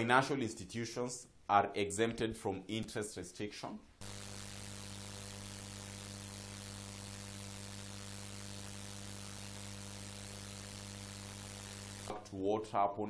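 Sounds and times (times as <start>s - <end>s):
electrical hum with hiss: 3.9s - 12.5s.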